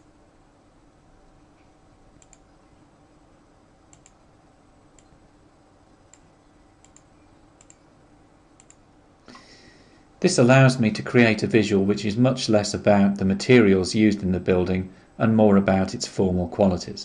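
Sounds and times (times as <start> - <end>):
low room hum: 0.0 - 17.0
computer mouse clicks: 2.2 - 2.5, 3.9 - 4.2, 6.1 - 7.8, 8.6 - 8.8.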